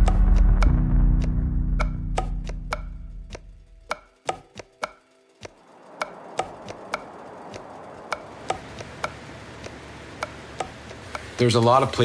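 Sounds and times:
percussive ticks with ringing tone: 0:00.0 - 0:12.0
soft airy hiss: 0:05.5 - 0:12.0.

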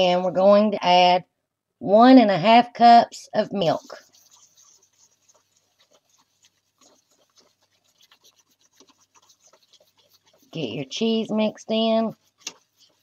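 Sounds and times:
whisk scraping metal pot: 0:03.6 - 0:13.0.

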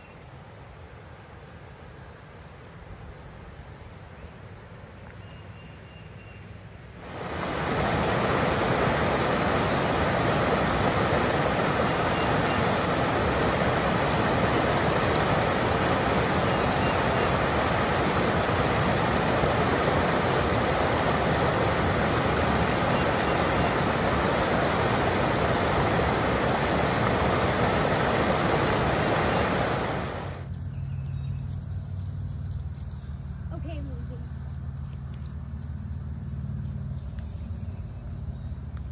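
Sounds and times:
waterfall rushing: 0:07.0 - 0:30.5
woodland ambience: 0:07.0 - 0:31.1.

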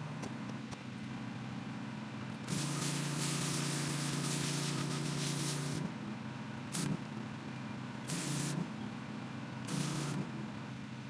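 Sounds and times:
pressure washer machine drone: 0:02.4 - 0:07.3, 0:07.9 - 0:10.5
pressure washer spraying concrete: 0:02.5 - 0:05.8, 0:06.7 - 0:07.0, 0:08.1 - 0:08.6, 0:09.7 - 0:10.2.

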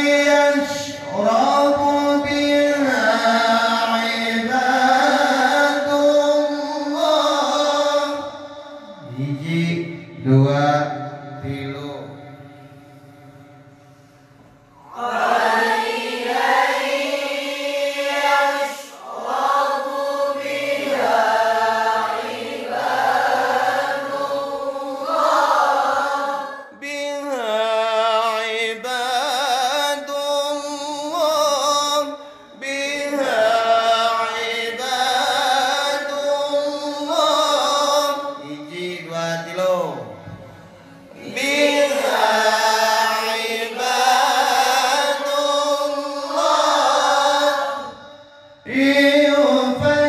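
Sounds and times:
man reciting melodically: 0:00.0 - 0:14.2, 0:26.6 - 0:50.0.

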